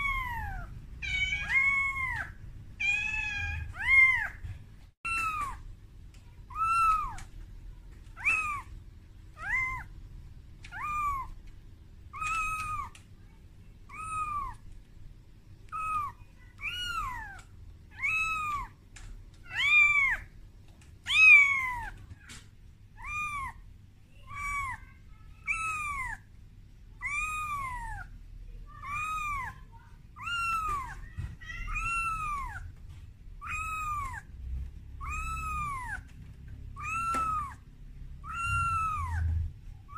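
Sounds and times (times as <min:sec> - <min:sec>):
kitten meowing: 0:00.0 - 0:04.4, 0:05.1 - 0:05.6, 0:06.5 - 0:07.3, 0:08.2 - 0:08.7, 0:09.4 - 0:09.9, 0:10.6 - 0:11.4, 0:12.1 - 0:13.0, 0:13.9 - 0:14.6, 0:15.7 - 0:18.7, 0:19.4 - 0:20.3, 0:21.1 - 0:22.4, 0:23.0 - 0:23.6, 0:24.2 - 0:26.2, 0:27.0 - 0:28.1, 0:28.8 - 0:29.6, 0:30.2 - 0:32.8, 0:33.4 - 0:34.3, 0:35.0 - 0:36.2, 0:36.8 - 0:37.6, 0:38.2 - 0:39.9.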